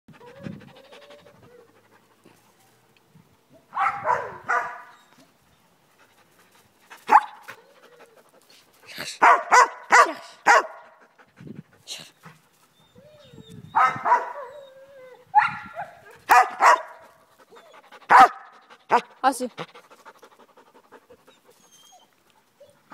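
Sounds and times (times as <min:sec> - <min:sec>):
dog panting: 0:00.1 - 0:02.6, 0:05.8 - 0:12.9, 0:16.3 - 0:22.9
dog barking: 0:03.7 - 0:04.9, 0:07.1 - 0:07.4, 0:09.2 - 0:10.8, 0:13.8 - 0:14.5, 0:15.4 - 0:17.0, 0:18.1 - 0:19.1.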